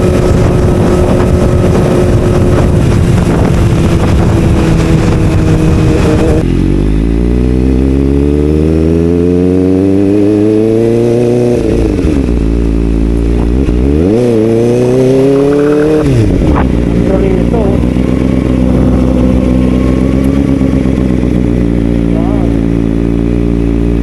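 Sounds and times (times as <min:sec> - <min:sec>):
wind noise on microphone: 0:00.0 - 0:06.5, 0:13.2 - 0:19.8
motorcycle engine revving: 0:00.0 - 0:24.0.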